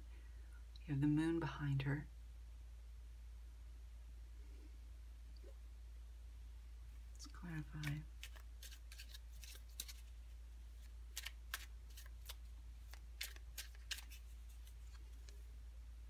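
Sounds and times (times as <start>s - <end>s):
faint low hum: 0.0s - 16.0s
cards shuffling: 7.5s - 15.5s.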